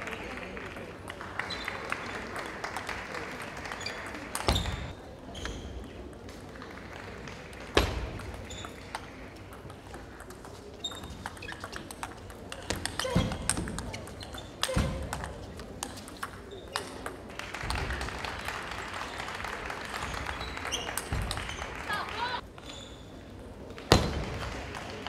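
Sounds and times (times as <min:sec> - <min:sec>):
table tennis ball bouncing: 0:07.7 - 0:18.5, 0:19.9 - 0:21.7.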